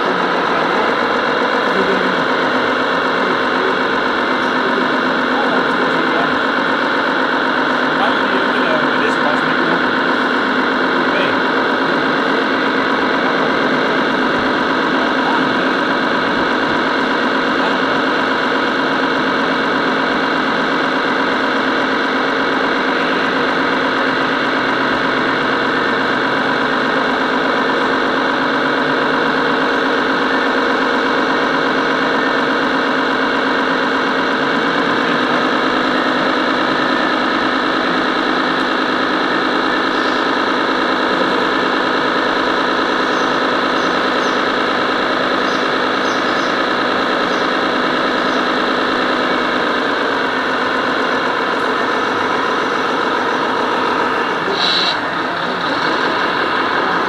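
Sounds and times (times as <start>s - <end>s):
model truck mechanical drone: 0.0s - 57.0s.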